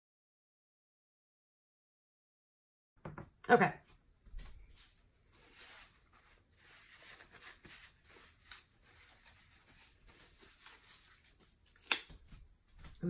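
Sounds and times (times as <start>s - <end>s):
faint soft rustles: 4.2s - 11.7s.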